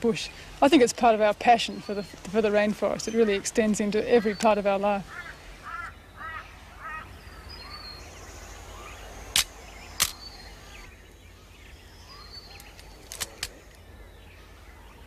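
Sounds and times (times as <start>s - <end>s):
birds calling: 0.0s - 15.0s
sharp clicks: 9.3s - 10.3s, 12.5s - 13.8s.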